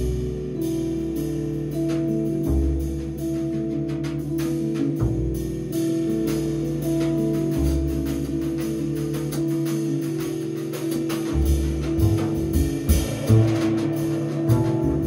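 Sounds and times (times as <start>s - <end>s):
double bass notes: 0.0s - 15.0s.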